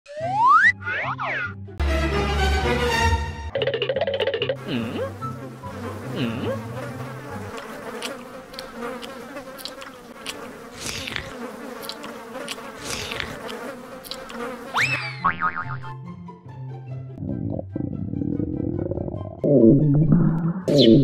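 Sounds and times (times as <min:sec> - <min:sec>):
bouncy music: 0:00.1 - 0:07.5, 0:15.0 - 0:21.0
flies buzzing: 0:03.6 - 0:16.0.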